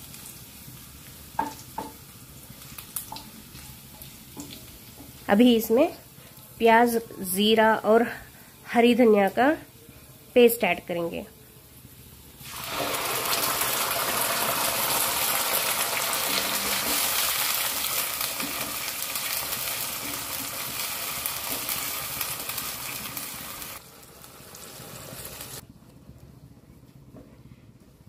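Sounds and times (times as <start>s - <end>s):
paste sizzling in hot oil: 12.3s - 25.6s.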